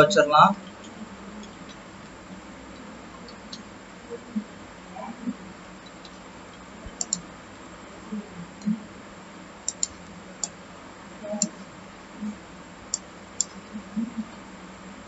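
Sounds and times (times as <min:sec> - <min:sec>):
faint steady low hum: 0:00.0 - 0:15.0
mouse and keyboard clicks: 0:06.9 - 0:07.2, 0:09.7 - 0:10.0.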